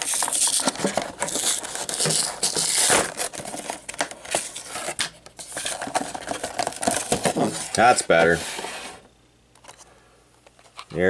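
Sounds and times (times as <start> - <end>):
plastic blister pack crinkling: 0.0 - 7.9.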